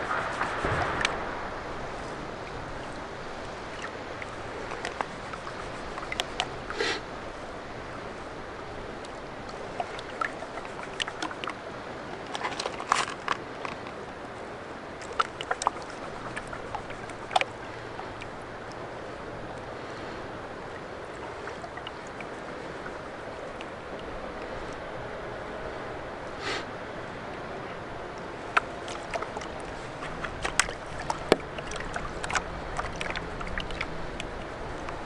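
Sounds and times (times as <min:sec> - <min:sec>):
water sloshing and splashing: 0:00.0 - 0:35.0.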